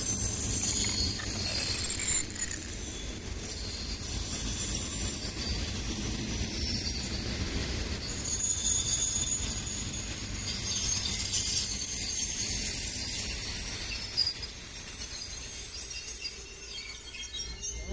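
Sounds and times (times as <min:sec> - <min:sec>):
train coaches rumbling on rails: 0:00.0 - 0:16.8
high-pitched wheel squeals: 0:00.0 - 0:17.9.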